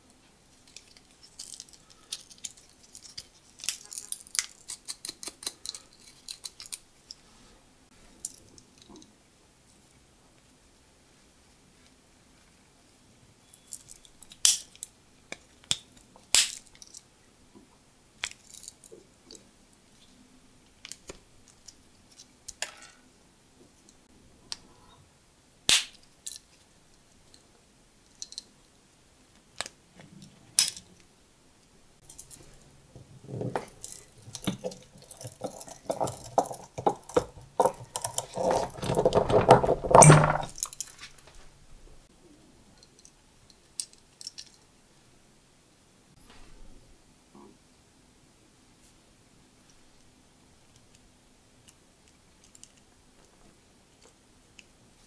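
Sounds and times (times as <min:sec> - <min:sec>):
multitool scraping and rattling: 0:33.3 - 0:41.2.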